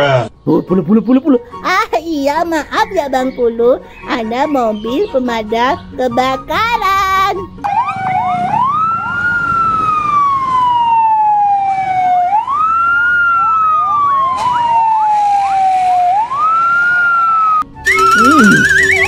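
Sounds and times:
fire engine siren wailing: 0:07.6 - 0:19.0
quick sweeping siren tones: 0:13.9 - 0:19.0.

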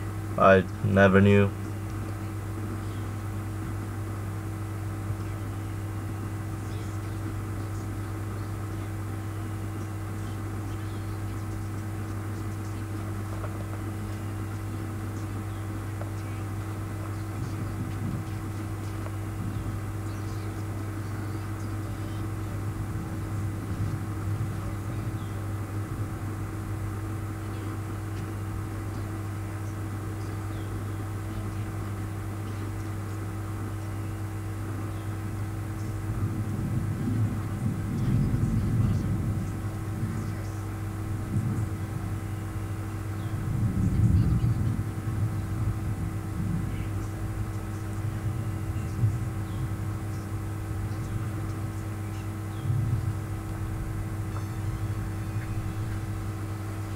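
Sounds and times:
low electrical hum: 0:00.0 - 0:56.9.

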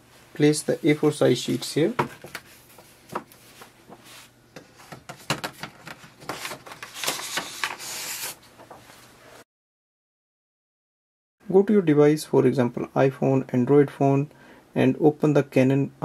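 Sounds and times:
paper sheets rustling and sliding: 0:02.4 - 0:09.0.

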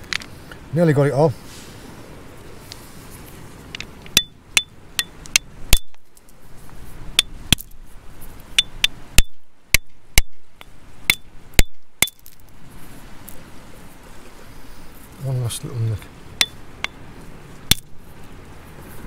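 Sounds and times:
hammer tapping stone: 0:04.1 - 0:06.0, 0:08.6 - 0:12.2.

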